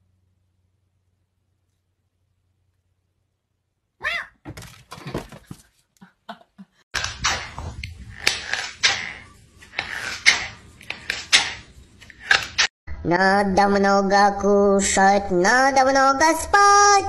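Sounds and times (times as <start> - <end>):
cat cry: 4.0 - 4.4.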